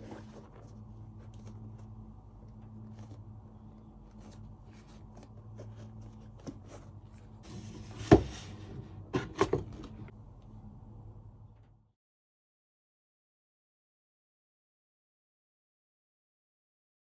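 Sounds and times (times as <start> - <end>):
low hum: 0.0 - 12.0
boots knocking on cardboard box: 7.5 - 8.6.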